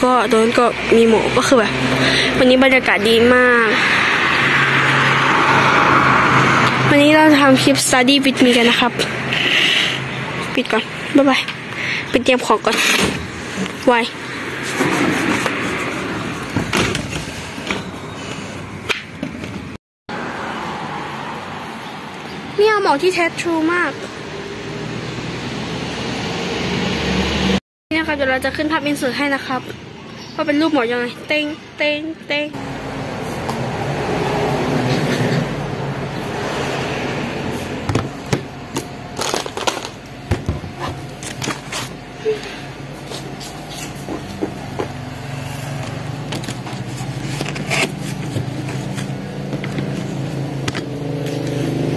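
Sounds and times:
street ambience: 0:00.0 - 0:51.9
plastic packaging rustling: 0:39.1 - 0:40.2.

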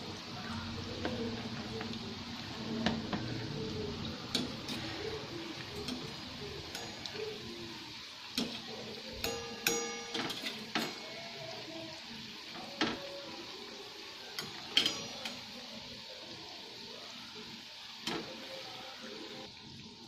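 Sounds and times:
food deep-frying in oil: 0:00.0 - 0:20.0
wire skimmer clinking on pan: 0:04.2 - 0:11.7, 0:14.4 - 0:15.7.

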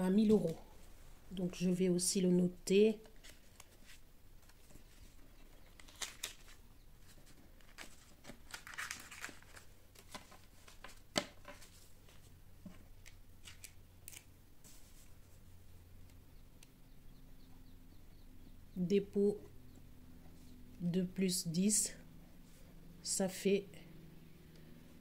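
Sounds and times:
banknotes rustling and flicking: 0:03.0 - 0:12.4, 0:13.0 - 0:15.5.

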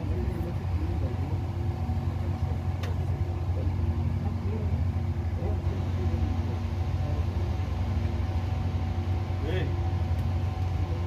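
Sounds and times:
faint voices: 0:00.0 - 0:08.3
low mechanical rumble: 0:00.0 - 0:11.0.

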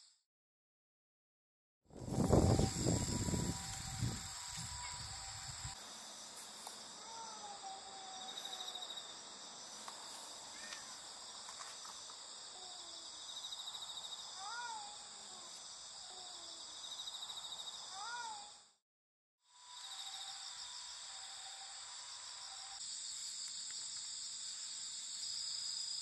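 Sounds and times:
pulsing insect trill: 0:02.0 - 0:11.4, 0:19.5 - 0:26.0
insects chorus: 0:02.0 - 0:18.7, 0:19.5 - 0:26.0.

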